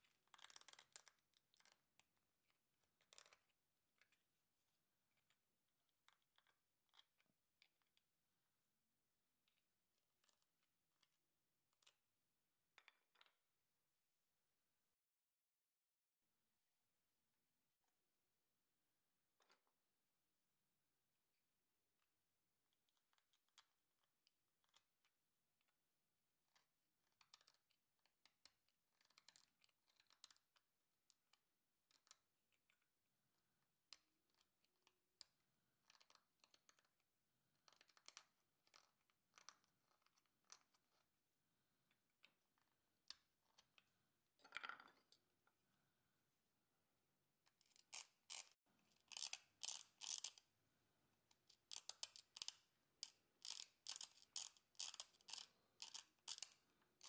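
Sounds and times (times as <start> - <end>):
chisel scraping a nut: 47.5 - 50.4, 51.4 - 56.6.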